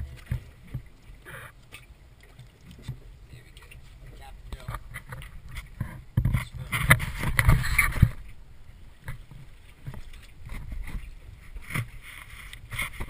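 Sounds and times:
camera handling rubbing and knocks: 4.7s - 8.2s.

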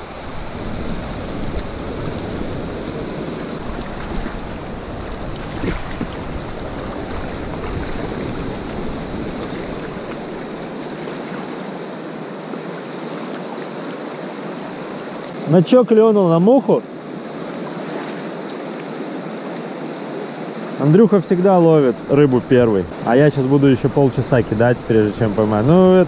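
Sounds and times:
wind rumbling on microphone: 0.0s - 12.0s
river water rushing: 0.0s - 26.0s.

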